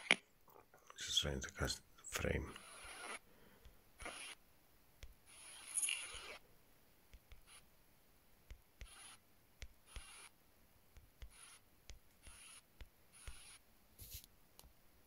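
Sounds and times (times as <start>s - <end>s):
short scratchy rubbing: 2.5s - 3.2s.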